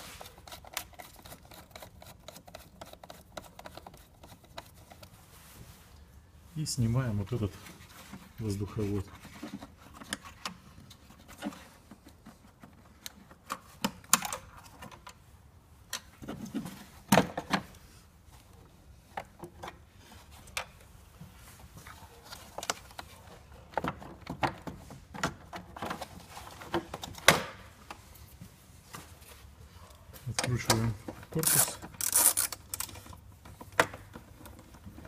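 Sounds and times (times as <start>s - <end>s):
hand tools and plastic parts clattering: 0.0s - 6.0s, 7.3s - 15.3s, 15.9s - 35.0s.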